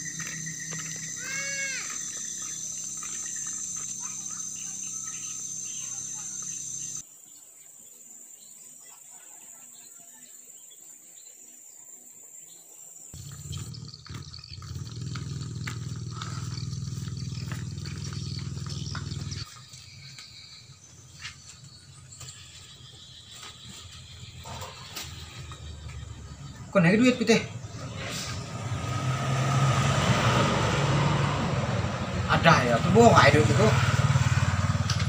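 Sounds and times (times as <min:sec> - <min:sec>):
rising-and-falling call: 0:00.0 - 0:07.0
insects droning: 0:00.0 - 0:35.0.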